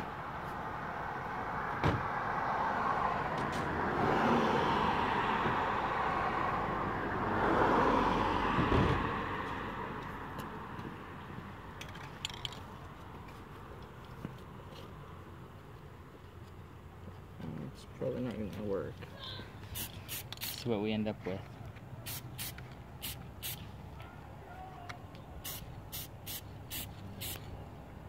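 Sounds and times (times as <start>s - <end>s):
road traffic passing: 0.0s - 28.0s.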